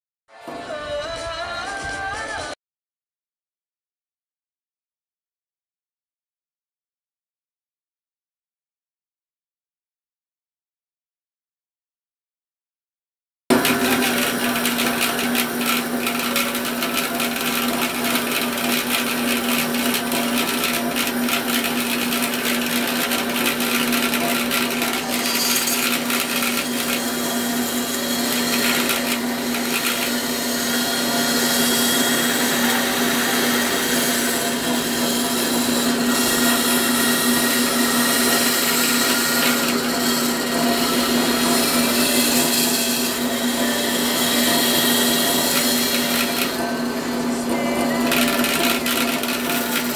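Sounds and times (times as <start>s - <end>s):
electric bandsaw running: 13.5s - 49.9s.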